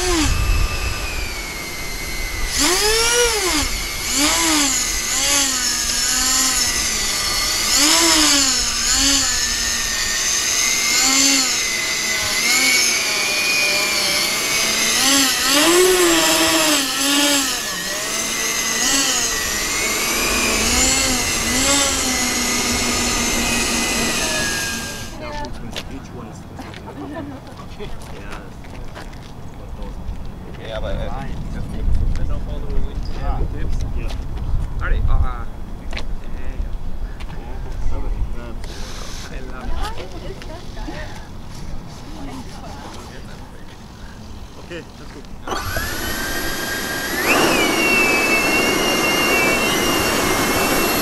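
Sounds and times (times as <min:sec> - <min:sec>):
electric fan whine steady: 0:00.0 - 0:25.3, 0:42.8 - 0:51.0
fan whine rising and falling: 0:00.0 - 0:25.3, 0:41.0 - 0:51.0.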